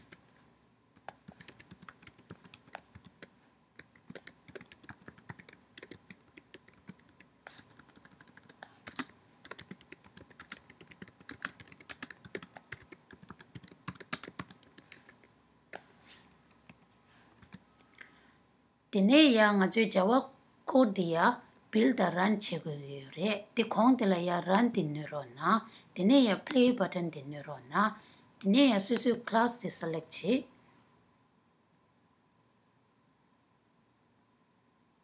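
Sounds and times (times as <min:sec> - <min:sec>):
keyboard typing: 0:00.0 - 0:00.3, 0:01.0 - 0:16.8, 0:17.4 - 0:17.6.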